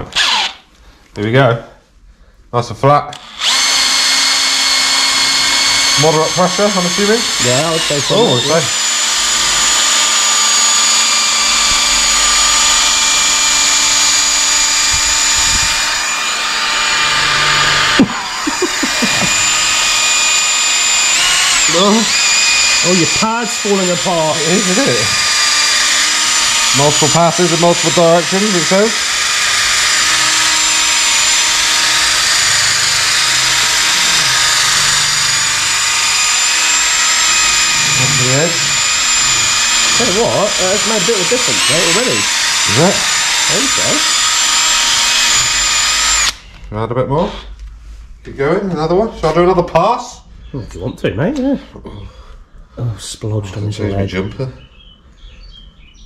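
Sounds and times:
drill whining with polishing pad: 0.0 - 0.7, 3.1 - 46.6.

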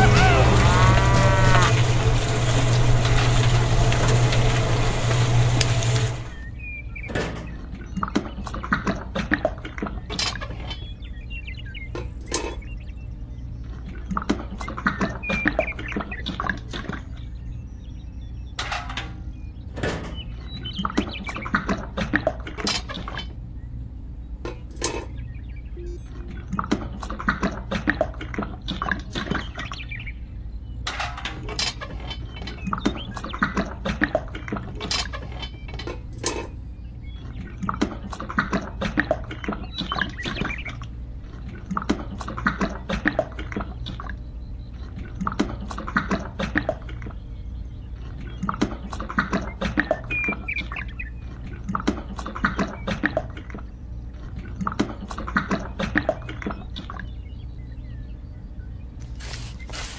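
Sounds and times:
steady low hum: 23.2 - 30.9.

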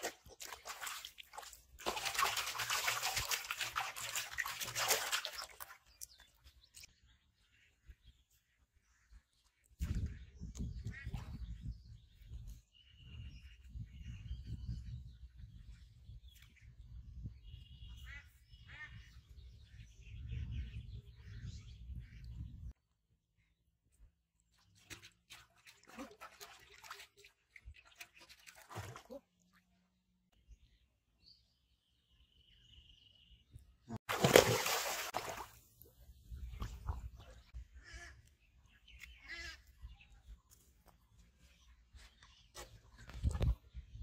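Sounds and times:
water sloshing and lapping: 0.0 - 6.9, 24.4 - 29.7, 34.0 - 37.6
wind rumble on microphone: 9.7 - 22.8, 42.9 - 44.0
loud splash into water: 34.1 - 35.5.

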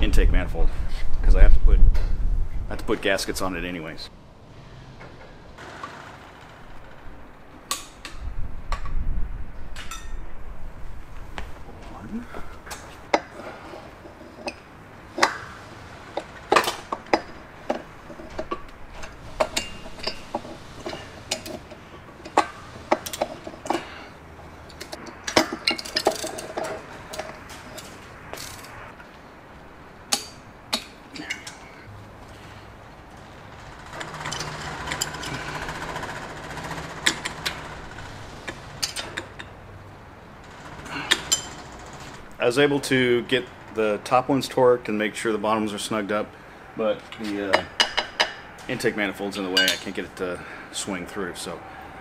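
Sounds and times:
hand tools clinking on metal: 16.2 - 24.1, 33.9 - 37.8, 40.9 - 41.9, 49.4 - 50.1.

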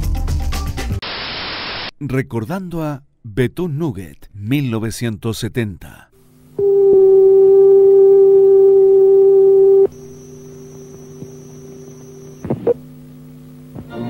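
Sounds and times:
electronic line-up tone: 6.6 - 12.8
low hum: 6.6 - 13.7
faint high whine: 6.6 - 14.0.

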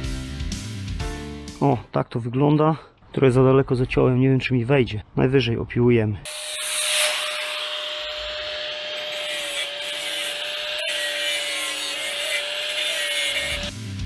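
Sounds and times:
power tool grinding metal: 6.3 - 13.8.

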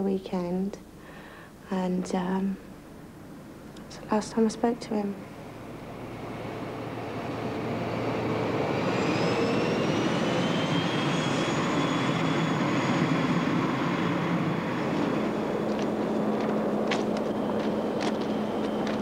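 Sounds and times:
high whine of train: 0.0 - 19.0
passenger train running past: 4.2 - 19.0.

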